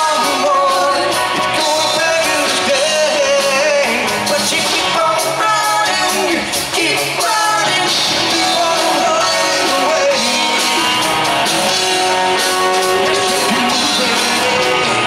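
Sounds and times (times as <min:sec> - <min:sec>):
live rock band playing loudly: 0:00.0 - 0:15.0.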